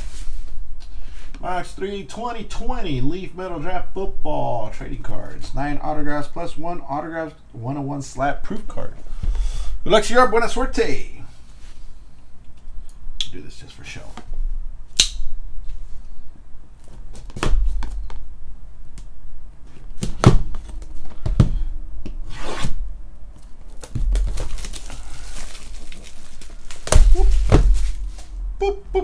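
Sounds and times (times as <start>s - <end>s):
plastic and foil crinkling: 23.4s - 28.4s.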